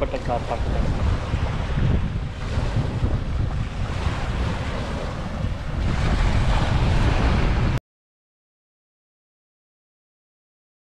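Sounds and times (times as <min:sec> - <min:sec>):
steady rushing noise: 0:00.0 - 0:07.8
wind buffeting microphone: 0:00.0 - 0:07.8.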